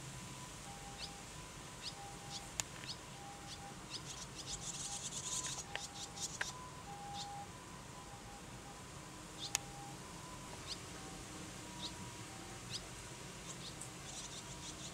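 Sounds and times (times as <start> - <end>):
swallow chicks chirping: 0.9 - 1.2, 1.8 - 7.4, 9.4 - 9.6, 10.6 - 10.9, 11.7 - 12.0, 12.6 - 14.9.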